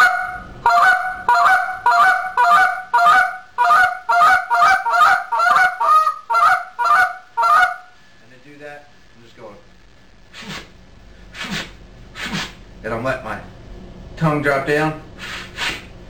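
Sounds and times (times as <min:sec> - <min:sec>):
goose call double clucks: 0:00.0 - 0:07.8.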